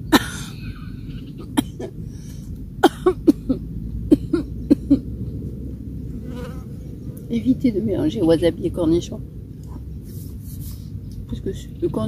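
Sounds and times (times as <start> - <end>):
woman coughing: 0.1 - 0.8, 1.5 - 2.0, 2.8 - 5.0.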